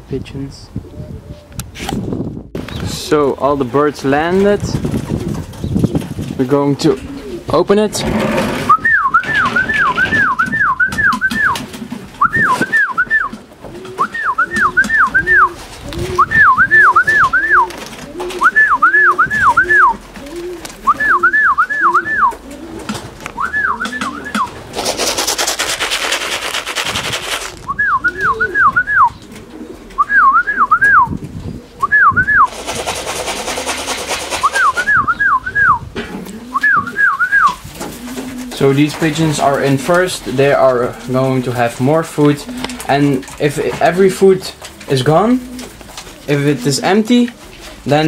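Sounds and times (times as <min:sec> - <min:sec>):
pigeons cooing: 0:00.8 - 0:01.6, 0:05.0 - 0:48.0
person whistling: 0:08.7 - 0:11.6, 0:12.2 - 0:13.3, 0:14.0 - 0:15.6, 0:16.2 - 0:17.7, 0:18.4 - 0:20.0, 0:20.9 - 0:22.4, 0:23.4 - 0:24.5, 0:27.7 - 0:29.2, 0:30.0 - 0:31.1, 0:31.8 - 0:32.5, 0:34.4 - 0:35.9, 0:36.5 - 0:37.6.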